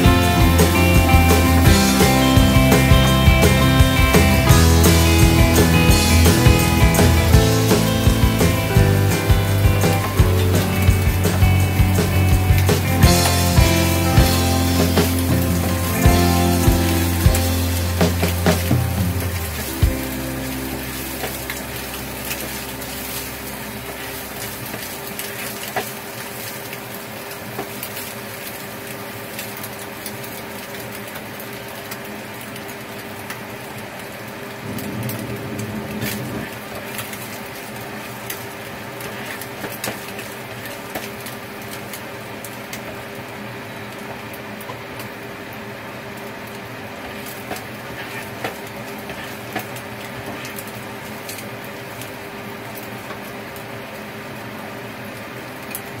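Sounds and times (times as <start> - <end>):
rice sizzling in a pan: 11.3 - 35.2, 36.5 - 56.0.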